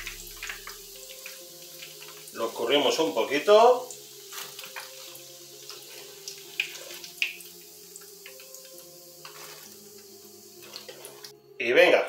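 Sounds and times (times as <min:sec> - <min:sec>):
food sizzling in hot oil: 0:00.0 - 0:11.4.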